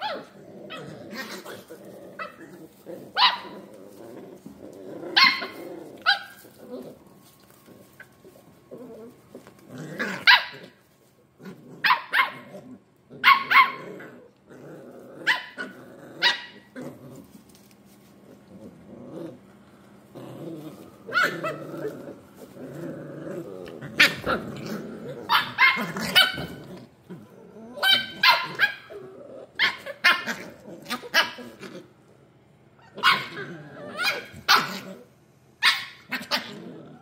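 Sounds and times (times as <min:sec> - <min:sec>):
puppies play-growling: 0:00.0 - 0:37.0
puppies yipping and barking: 0:03.1 - 0:03.7, 0:05.1 - 0:06.9, 0:13.2 - 0:13.8, 0:24.0 - 0:24.6, 0:25.2 - 0:26.6, 0:27.8 - 0:28.9, 0:32.8 - 0:34.8.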